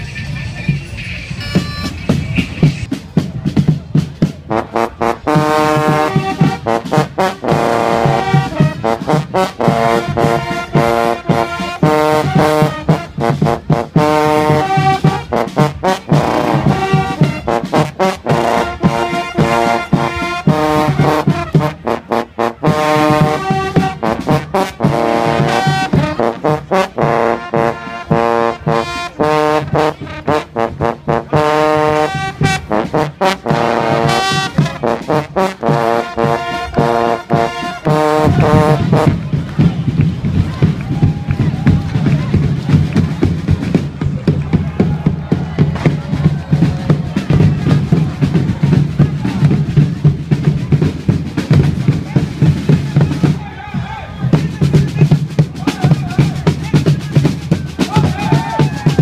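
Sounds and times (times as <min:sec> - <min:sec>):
marching drums beating: 0:00.5 - 0:59.0
trumpets playing held notes: 0:01.3 - 0:03.0, 0:04.4 - 0:39.5.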